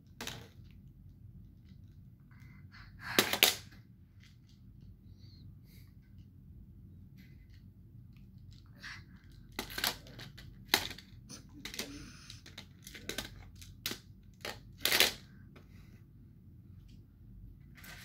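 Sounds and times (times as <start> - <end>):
toy pieces clacking: 8.4 - 15.2.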